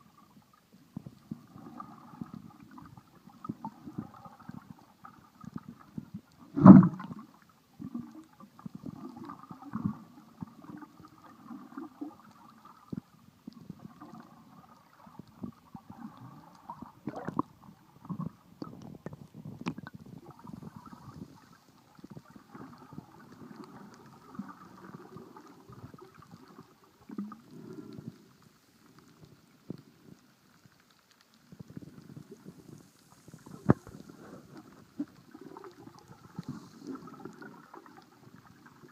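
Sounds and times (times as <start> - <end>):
underwater gurgling and sloshing: 0.0 - 38.9
faint clicks: 26.2 - 38.1.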